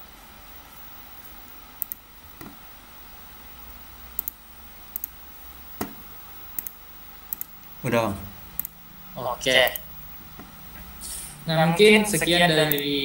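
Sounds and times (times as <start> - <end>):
faint background hiss: 0.0 - 13.0
computer mouse clicks: 1.8 - 2.5, 4.2 - 5.2, 6.6 - 7.5, 8.6 - 8.8.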